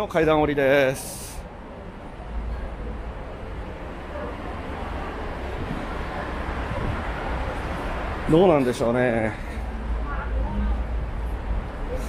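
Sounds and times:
city background noise: 0.0 - 12.0
low wind rumble on microphone: 4.6 - 8.2.

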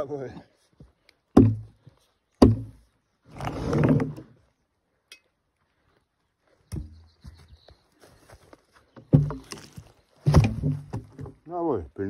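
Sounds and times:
heavy wooden thunks: 1.4 - 1.8, 2.4 - 2.8, 9.0 - 11.5
scraping rustle: 3.3 - 4.4.

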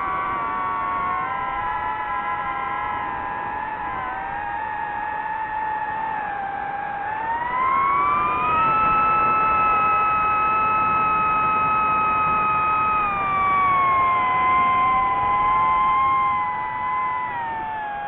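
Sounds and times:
drone propellers whining: 0.0 - 18.0.

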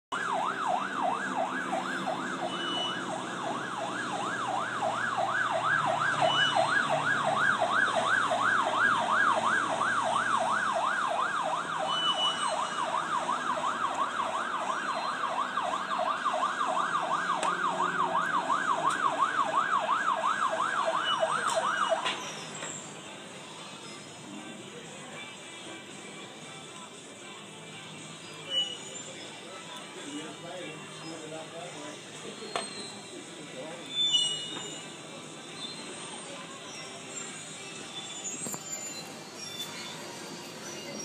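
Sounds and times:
electronic siren yelping: 0.1 - 22.1.

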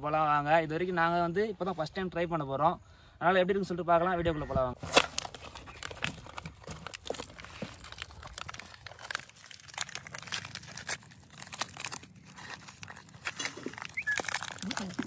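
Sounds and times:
packet crinkling: 4.8 - 15.0.

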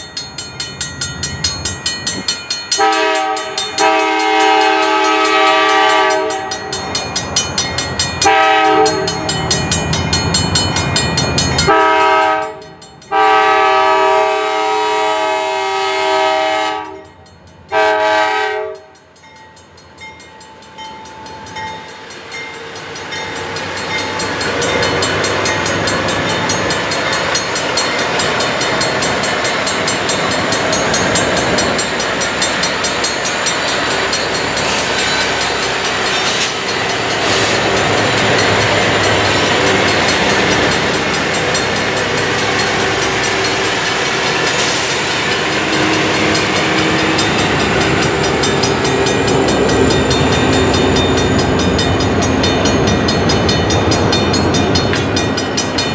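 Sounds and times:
crossing warning bell ringing: 0.0 - 55.9
locomotive engines and wheels rumbling: 0.0 - 55.9
locomotive chord horn blasts: 2.8 - 6.7, 8.2 - 9.4, 11.7 - 19.0, 45.4 - 48.3.

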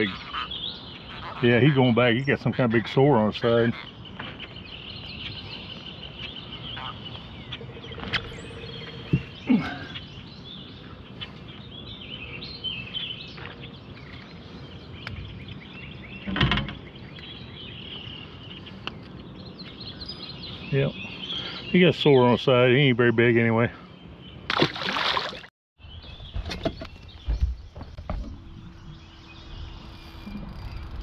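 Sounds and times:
small birds chirping: 0.0 - 31.0
knocks in a boat: 16.2 - 16.9.

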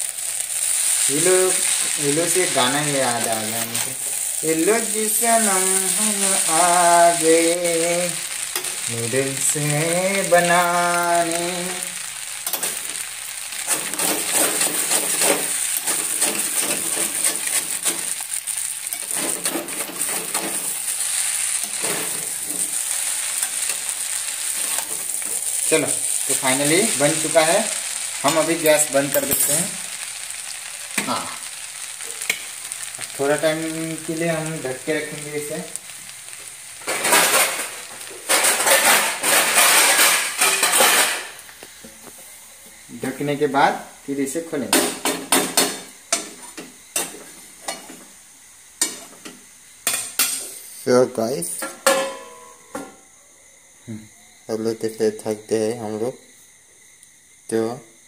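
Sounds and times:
noodles sizzling in a pan: 0.0 - 53.7
spatula scraping frying pan: 12.4 - 26.3, 36.8 - 41.3
metal spatula scraping pan: 38.3 - 41.3.

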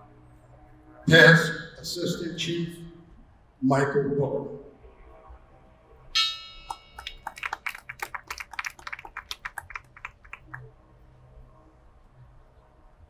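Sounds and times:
fast run of sharp clicks: 7.0 - 10.6.

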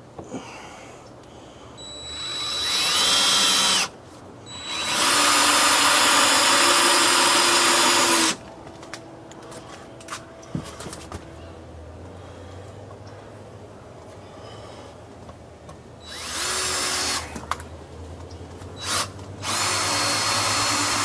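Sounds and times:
power drill driving screws: 1.8 - 3.9, 4.5 - 8.4, 16.0 - 17.3, 18.8 - 21.0.

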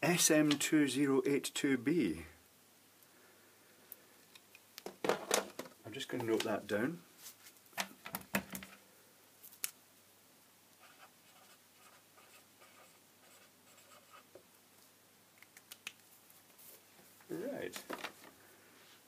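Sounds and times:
pen scratching on paper: 10.8 - 14.3.

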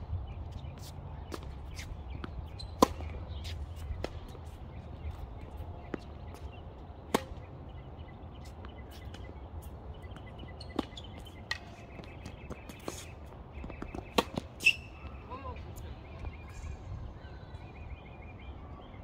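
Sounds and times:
racket striking tennis ball: 1.3 - 4.7, 7.1 - 7.5, 10.7 - 14.9
ball bouncing on hard court: 13.6 - 14.9.

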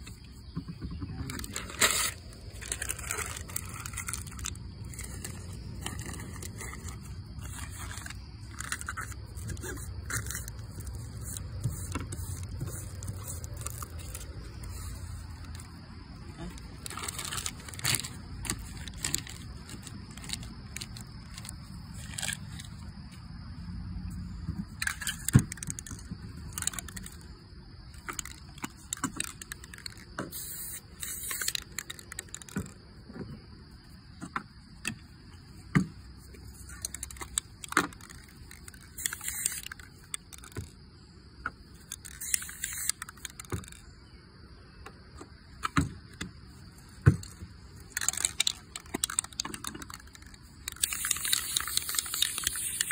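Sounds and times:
plastic bag rustling: 1.3 - 15.8, 16.4 - 22.8
spray can hissing: 30.3 - 31.5, 39.0 - 39.6, 42.2 - 43.0, 50.8 - 52.9
cans clicking and knocking: 48.0 - 52.9.

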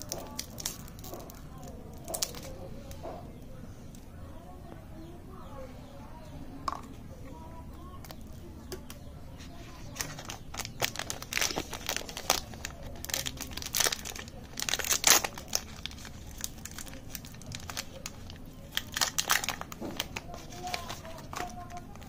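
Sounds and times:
plastic wrappers crinkling: 0.0 - 3.1, 9.5 - 22.0.

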